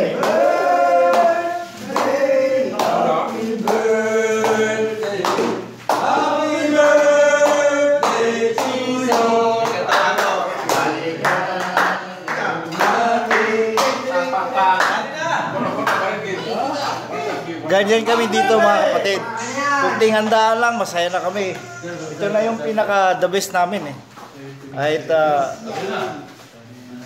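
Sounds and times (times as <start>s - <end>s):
men singing together: 0.0s - 14.8s.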